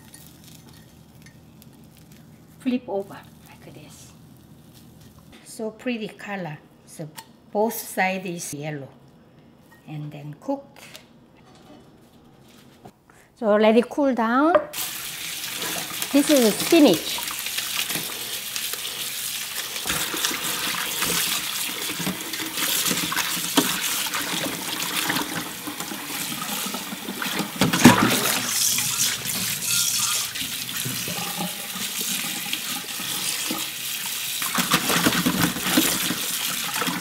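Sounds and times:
water splashing: 19.4 - 33.8.

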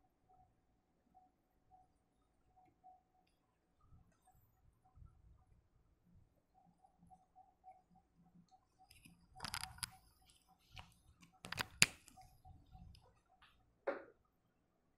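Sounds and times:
faint pulsing high tone: 0.0 - 11.2
sharp clicks and rustling: 8.8 - 12.3.

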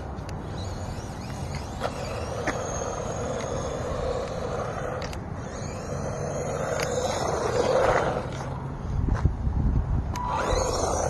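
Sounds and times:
toy truck motor whining: 0.3 - 8.6, 10.2 - 11.0
tyres rumbling on concrete: 0.4 - 8.8.

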